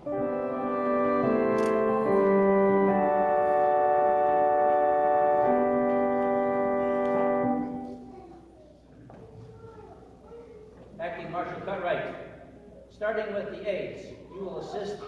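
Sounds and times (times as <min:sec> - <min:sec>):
organ playing held chords: 0:00.0 - 0:08.0.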